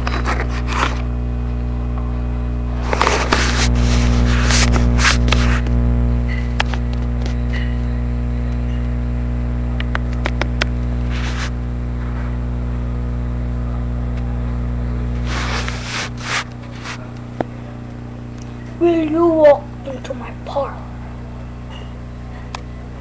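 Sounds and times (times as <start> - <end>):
rustles and scrapes: 0.0 - 1.1, 2.8 - 5.8, 11.0 - 11.6, 15.1 - 17.1
steady low hum: 0.0 - 23.0.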